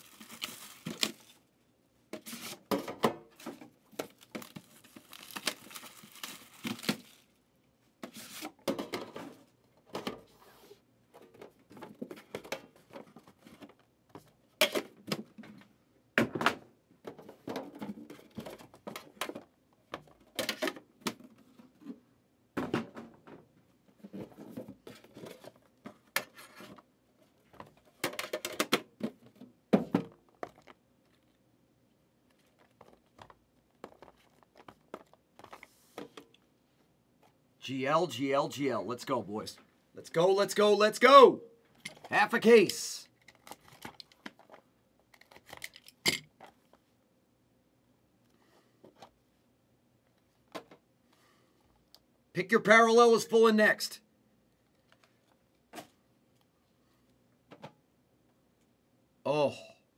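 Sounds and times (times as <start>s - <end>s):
wrapping crinkling and tearing: 0.0s - 1.4s, 4.2s - 7.4s.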